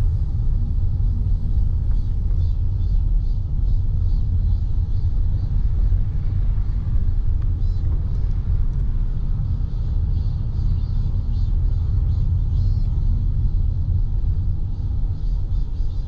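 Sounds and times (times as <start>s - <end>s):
car road rumble: 0.0s - 16.0s
cicadas singing: 9.1s - 16.0s.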